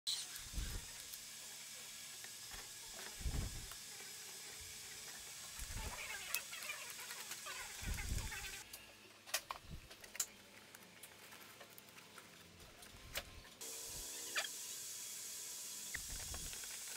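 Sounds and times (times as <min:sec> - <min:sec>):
steady hiss: 0:00.1 - 0:08.6, 0:13.6 - 0:16.9.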